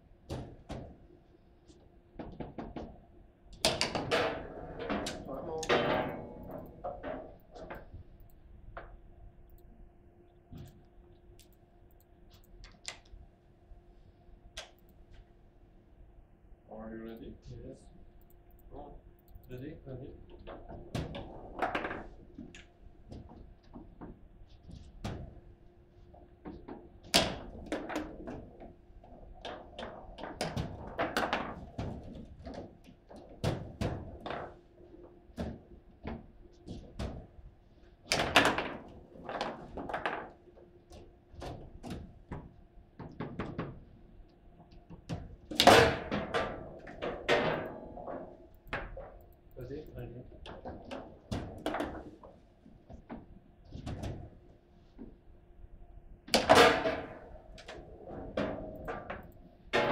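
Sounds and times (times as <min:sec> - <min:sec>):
foosball ball knocks and clacks: 0:03.6 - 0:07.9, 0:20.5 - 0:24.2, 0:26.5 - 0:28.7, 0:29.4 - 0:34.6, 0:38.1 - 0:40.4, 0:44.9 - 0:49.2, 0:50.4 - 0:52.4, 0:56.3 - 0:59.9.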